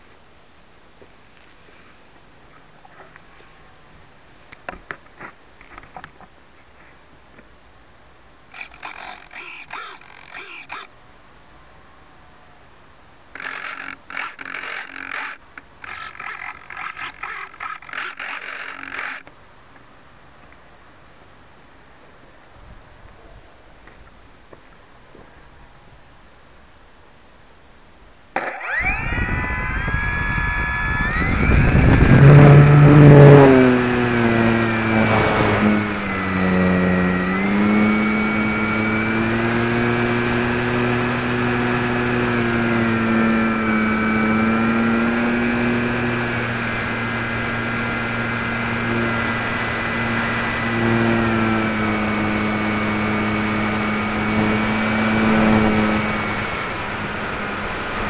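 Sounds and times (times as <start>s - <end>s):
electric motor whine: 8.5s - 10.9s, 28.4s - 58.0s.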